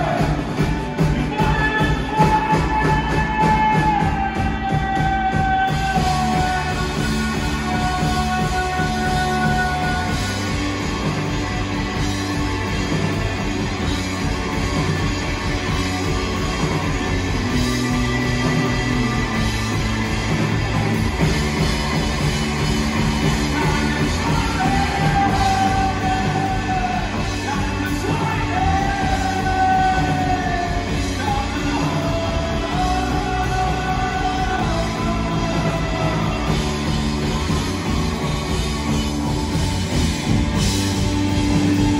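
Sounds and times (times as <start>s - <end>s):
bass guitar: 0.0s - 41.9s
drum kit: 0.0s - 41.9s
electric guitars: 0.0s - 41.9s
rock band playing live: 0.0s - 41.9s.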